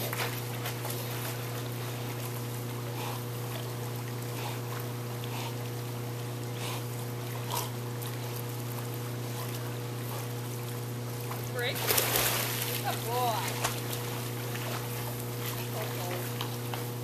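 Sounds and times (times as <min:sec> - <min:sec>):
dog breathing while swimming: 0:00.0 - 0:11.2
steady low hum: 0:00.0 - 0:17.0.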